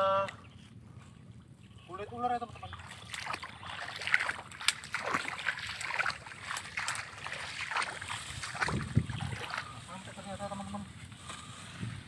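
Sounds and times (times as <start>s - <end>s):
footsteps on wet mud: 2.6s - 11.6s
shrub branches rustling: 3.4s - 12.0s.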